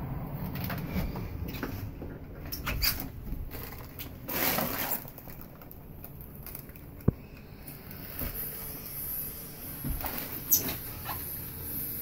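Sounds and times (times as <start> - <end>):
debris crunching and rustling: 2.6 - 7.4.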